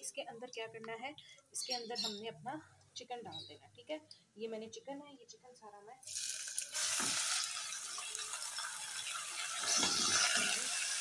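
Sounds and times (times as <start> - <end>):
chicken sizzling in hot oil: 6.0 - 11.0
spatula scraping saucepan: 9.3 - 11.0.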